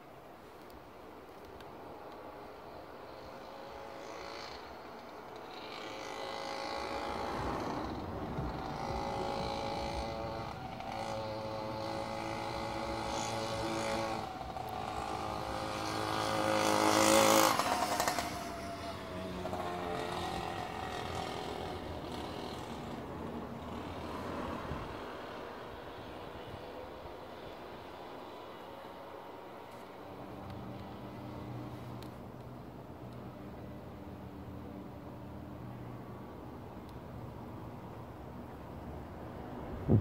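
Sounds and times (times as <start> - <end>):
vehicle engine passing by: 6.3 - 26.2.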